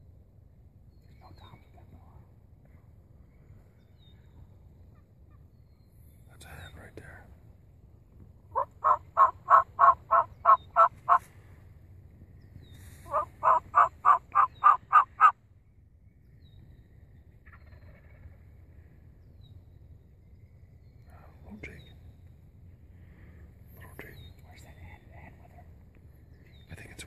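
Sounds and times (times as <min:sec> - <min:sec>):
turkey call yelps: 0:08.5 - 0:11.3, 0:13.1 - 0:15.4.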